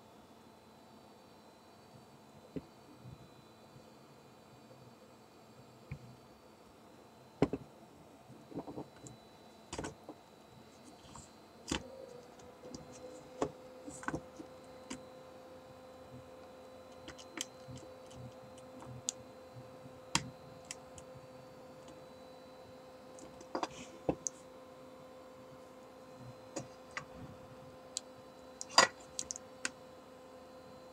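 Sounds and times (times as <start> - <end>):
faint steady hum: 0.0 - 30.9.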